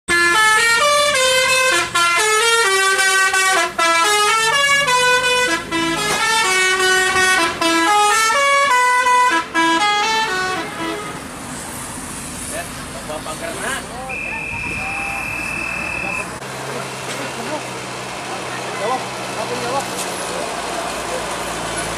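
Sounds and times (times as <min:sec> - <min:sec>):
bus musical horn playing a tune: 0:00.1 - 0:11.3.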